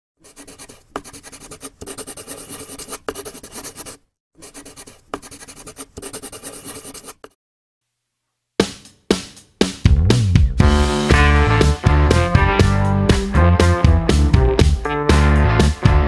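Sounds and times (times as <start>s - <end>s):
pen scribbling on paper: 0.2s - 7.4s.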